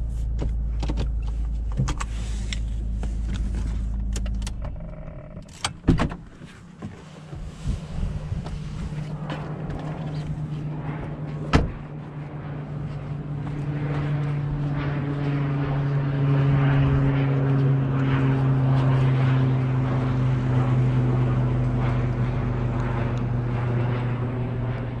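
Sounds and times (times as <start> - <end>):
steady humming drone: 0.0 - 6.1, 6.8 - 25.0
car door slamming: 5.7 - 6.3, 11.5 - 11.8.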